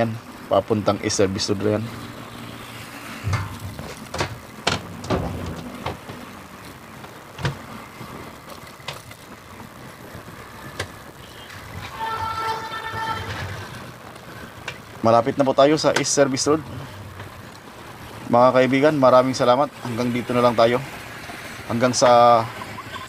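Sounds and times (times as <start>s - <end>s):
road and wind noise: 0.0s - 23.0s
sudden knocks: 3.2s - 6.2s
vehicle horn: 11.2s - 13.9s.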